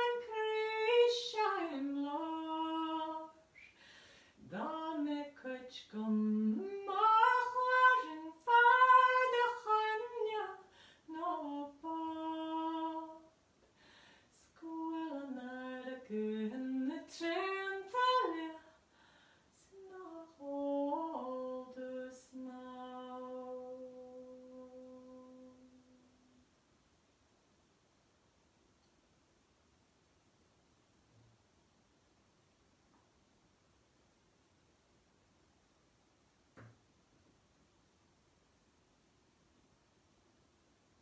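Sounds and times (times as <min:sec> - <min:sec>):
woman singing unaccompanied: 0:00.0 - 0:03.8, 0:04.4 - 0:13.4, 0:14.3 - 0:18.8, 0:19.5 - 0:26.4.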